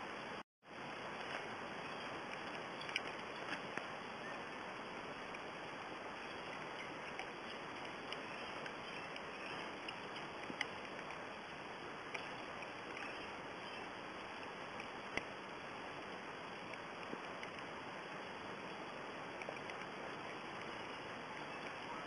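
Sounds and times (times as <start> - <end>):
steady rushing noise: 0.0 - 22.0
faint clicks: 1.2 - 3.9, 6.3 - 11.4, 12.0 - 15.4, 16.5 - 17.8, 18.6 - 22.0.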